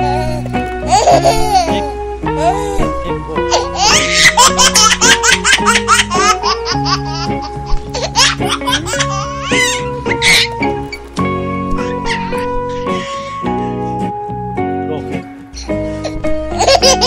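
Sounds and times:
background music: 0.0 - 17.0
baby giggling: 0.1 - 10.6, 11.7 - 13.4, 15.6 - 17.0.

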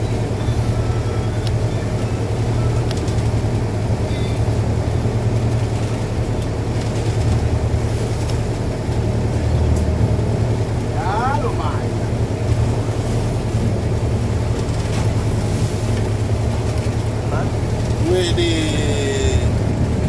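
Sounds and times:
boat engine humming: 0.0 - 20.0.

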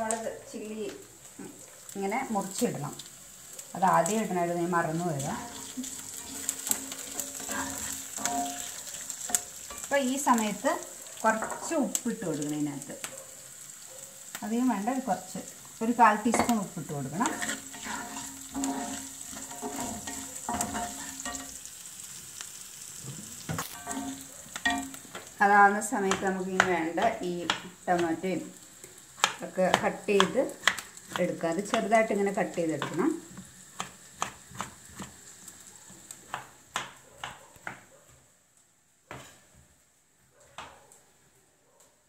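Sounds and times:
food sizzling in oil: 0.0 - 37.8
spatula scraping pan: 5.2 - 10.0, 16.2 - 21.7, 23.6 - 25.3.

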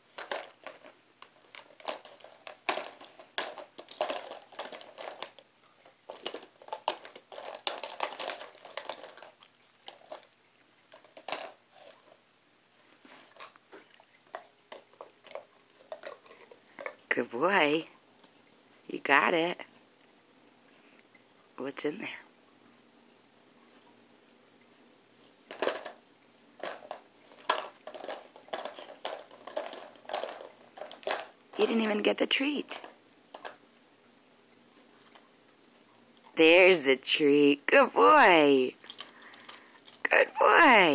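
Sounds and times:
plastic toy clicks and rattles: 0.2 - 5.4, 6.1 - 10.3, 10.9 - 12.0, 26.6 - 33.6.

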